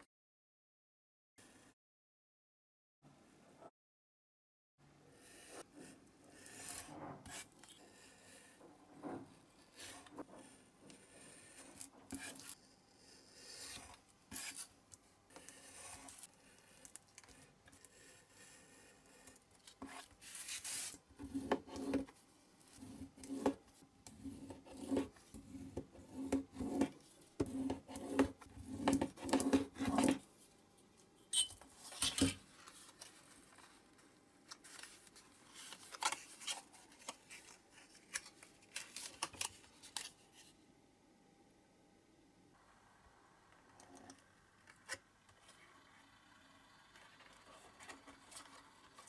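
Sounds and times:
utility knife scraping card: 13.4s - 14.7s.

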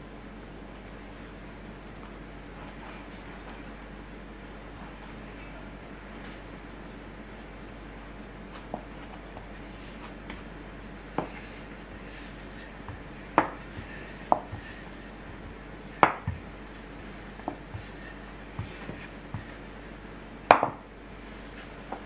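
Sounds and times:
rolling pin rolling dough on board: 11.1s - 22.0s
rolling pin knocking on wooden board: 13.4s - 13.6s, 16.0s - 16.4s, 20.5s - 20.8s.

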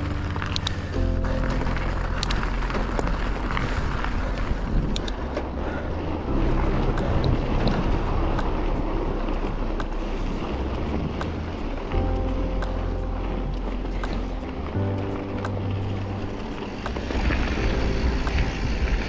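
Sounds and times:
bike clicks and rattles: 0.0s - 5.8s
bike rolling over rocky trail: 0.0s - 9.7s, 13.5s - 19.0s
wind buffeting microphone: 0.0s - 19.0s.

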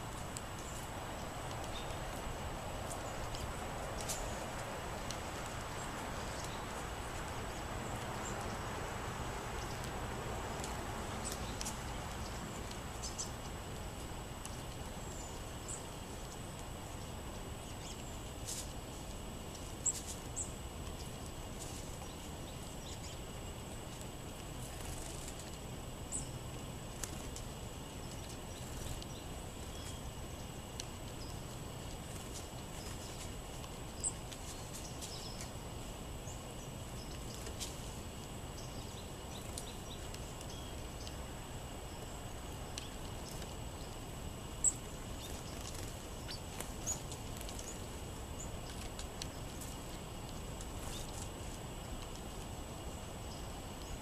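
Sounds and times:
outdoor hiss: 0.0s - 54.0s
birds pecking on wooden table: 0.1s - 25.8s, 36.8s - 53.0s.

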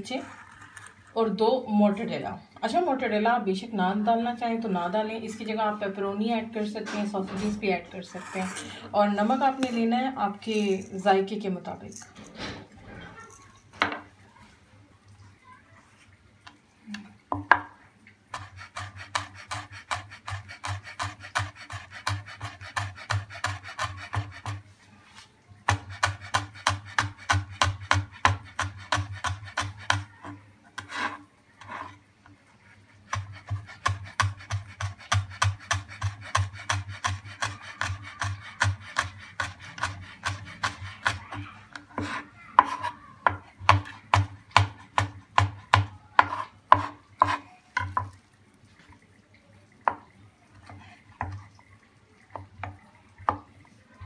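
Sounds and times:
knife chopping on wooden board: 18.4s - 24.6s, 25.7s - 30.1s, 33.1s - 41.2s, 42.0s - 48.2s.

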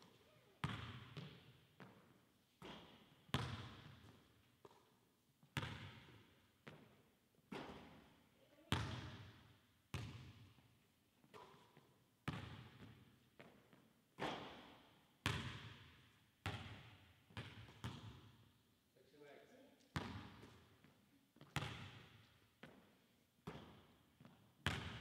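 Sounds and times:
basketball bouncing on hardwood floor: 0.6s - 2.0s, 5.6s - 6.9s, 8.7s - 9.3s, 10.0s - 10.4s, 12.3s - 13.8s, 15.3s - 18.3s, 20.0s - 20.6s, 21.4s - 22.8s, 23.4s - 25.0s.

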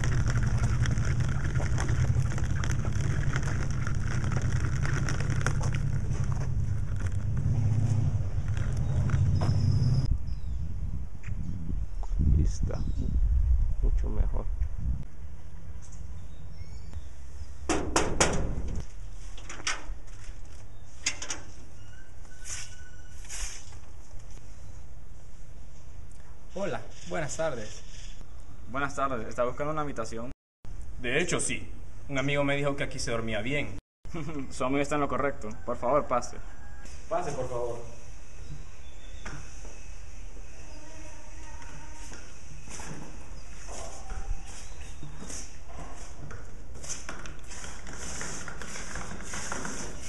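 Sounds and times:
suitcase wheels rolling on concrete: 0.0s - 10.1s, 41.4s - 50.0s
knocks on iron door: 17.7s - 18.8s.

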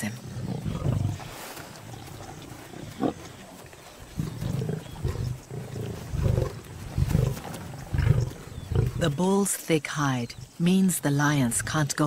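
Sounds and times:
lions growling: 0.0s - 9.2s.

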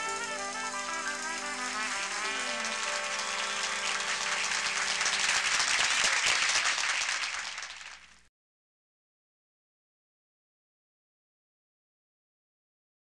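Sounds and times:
jazz band playing: 0.0s - 6.2s
audience applauding: 0.0s - 8.3s.

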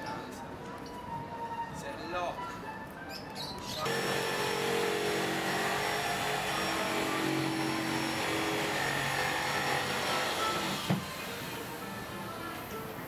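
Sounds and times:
engine drone: 3.9s - 11.7s.

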